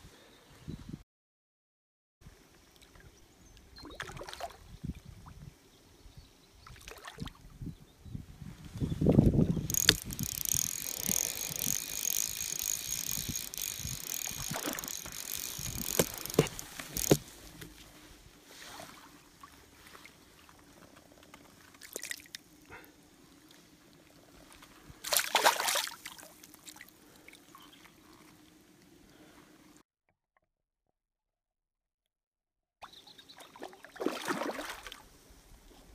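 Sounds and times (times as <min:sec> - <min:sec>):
water splashing: 0:09.7 - 0:17.6, 0:25.0 - 0:26.9, 0:33.6 - 0:35.0.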